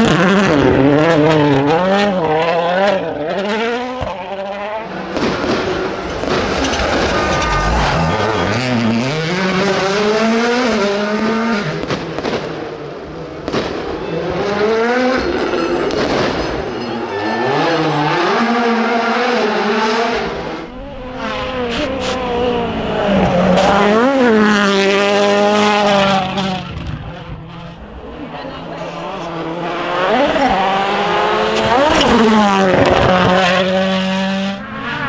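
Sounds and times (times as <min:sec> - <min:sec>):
rally car engines revving: 0:00.0 - 0:35.0.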